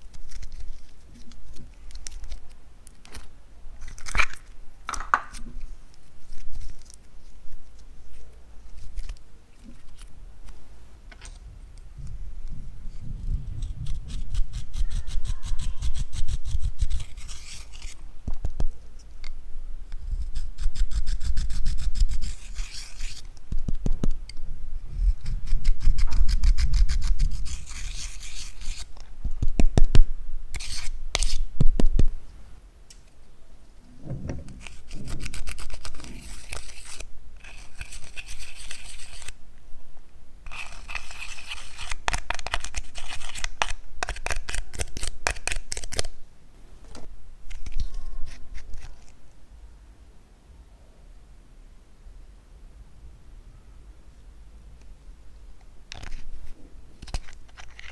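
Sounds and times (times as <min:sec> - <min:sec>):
metal tool scraping eyeshadow: 0:13.6 - 0:18.0, 0:20.2 - 0:23.3, 0:25.0 - 0:28.9, 0:34.6 - 0:39.3, 0:40.5 - 0:45.1.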